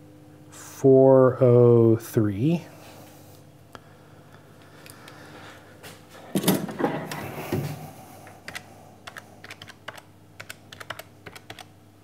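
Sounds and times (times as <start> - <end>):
calculator buttons clicking: 8.5 - 11.7.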